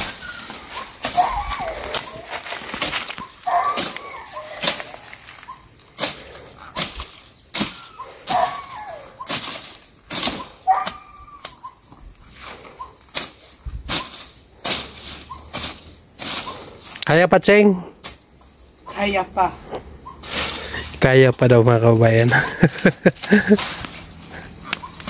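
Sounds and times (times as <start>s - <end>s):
blade swishing through grass: 0.0s - 11.0s, 12.4s - 17.0s, 20.2s - 21.0s, 22.2s - 25.0s
crickets droning: 0.0s - 25.0s.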